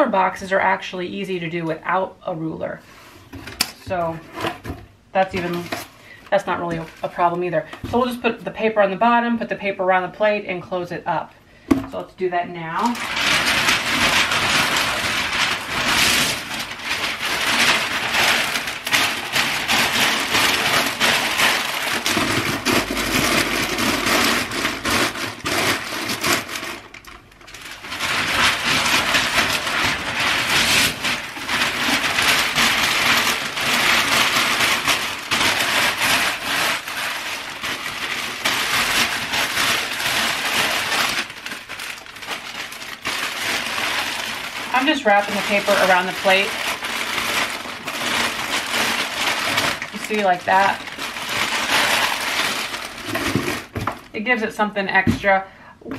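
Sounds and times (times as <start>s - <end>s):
packing paper crumpling: 3.4s - 9.0s, 12.6s - 54.2s.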